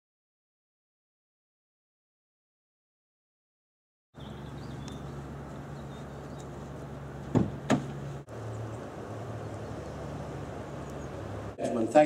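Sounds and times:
low hum: 4.2s - 11.6s
sharp knocks: 7.3s - 8.0s.

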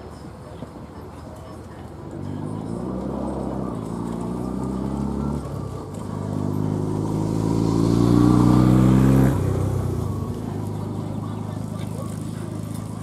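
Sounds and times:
engine running: 1.8s - 13.0s.

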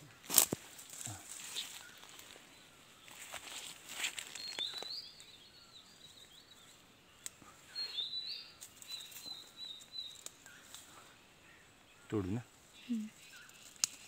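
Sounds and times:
rustling and snapping undergrowth: 0.0s - 5.4s, 7.2s - 7.4s, 8.6s - 11.0s, 13.2s - 14.0s
bird singing: 0.0s - 14.0s.

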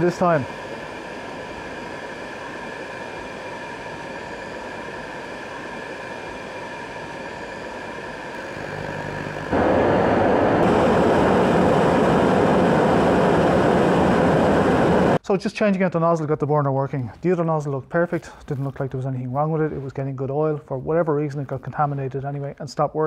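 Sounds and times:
burner flame rushing: 0.0s - 15.2s
low buzz: 0.0s - 15.2s
oil burner fan running: 0.0s - 15.2s.

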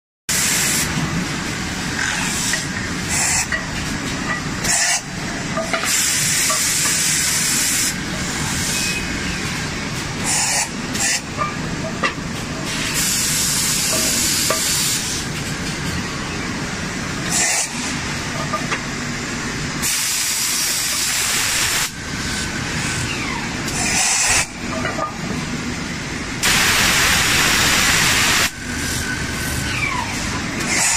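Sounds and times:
hissing bursts: 19.8s - 22.0s, 26.4s - 28.5s.

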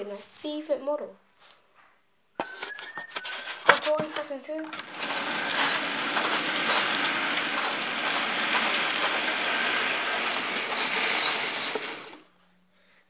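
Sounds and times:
model train wheels rattling: 3.8s - 12.3s
wheel clicks on track: 4.6s - 12.3s.

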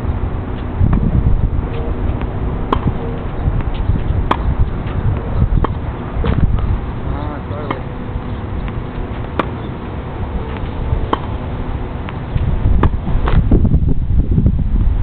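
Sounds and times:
wind rumble on microphone: 0.0s - 15.0s
tennis ball hit by rackets: 2.2s - 5.0s, 5.6s - 6.6s, 7.6s - 7.9s, 8.6s - 9.7s, 10.5s - 11.4s, 12.8s - 13.4s.

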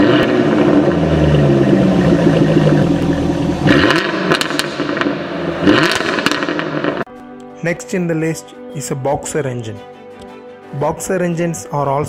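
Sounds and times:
car engine revving: 0.0s - 7.1s.

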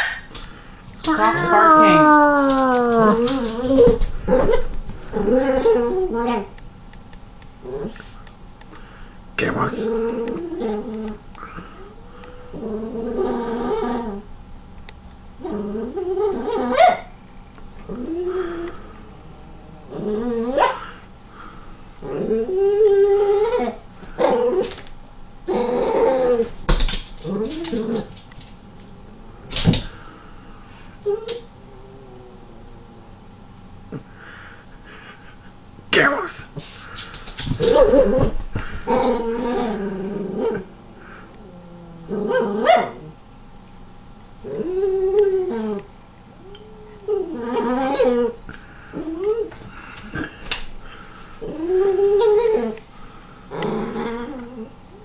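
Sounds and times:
animal yowling: 1.0s - 4.6s, 44.5s - 48.4s
dog barking and grumbling: 17.8s - 21.0s, 37.6s - 43.2s.

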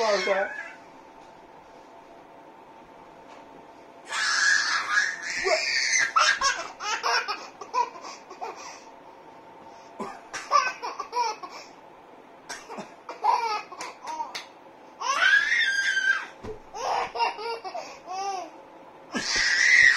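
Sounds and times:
baby laughing: 4.7s - 8.6s, 10.4s - 11.6s, 13.1s - 14.4s, 16.8s - 18.5s.

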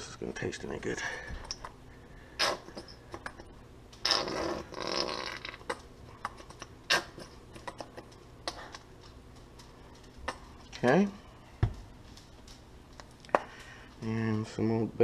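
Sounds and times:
squeeze bottle squirting: 4.0s - 5.8s.

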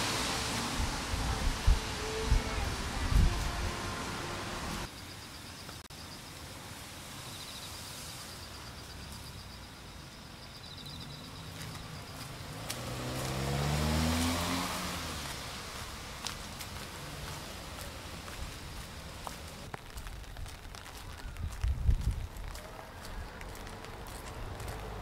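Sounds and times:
car driving past: 11.5s - 18.3s.

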